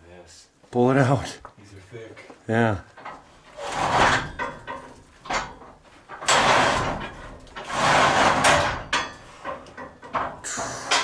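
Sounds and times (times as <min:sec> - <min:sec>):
drawer scraping: 0:03.5 - 0:04.4, 0:06.2 - 0:09.1.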